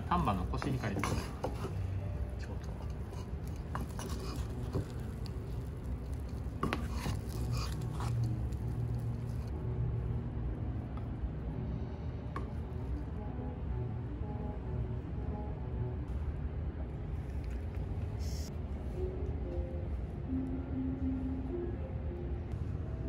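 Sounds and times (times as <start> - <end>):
steady low hum: 0.0 - 23.0
wooden paddle scraping rice pot: 0.6 - 1.9, 2.7 - 5.4, 6.6 - 8.6.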